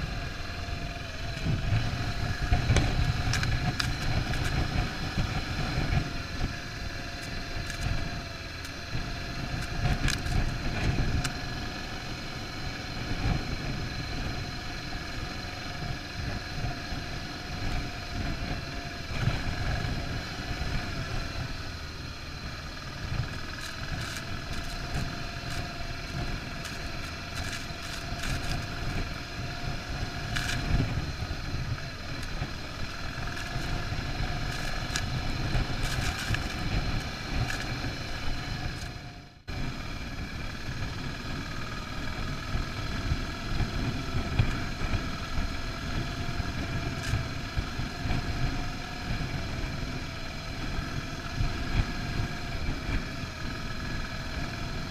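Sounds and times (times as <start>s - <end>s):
motorcycle engine running: 0.0s - 54.9s
sharp ticks and rattles: 0.0s - 54.9s
wind noise on microphone: 28.0s - 54.9s.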